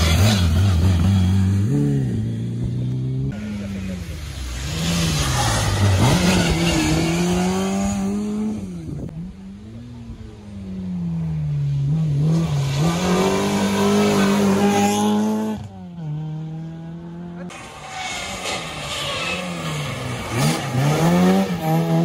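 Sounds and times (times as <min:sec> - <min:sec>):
rally car engines revving: 0:00.0 - 0:22.0
tyres hissing on wet road: 0:17.5 - 0:20.8.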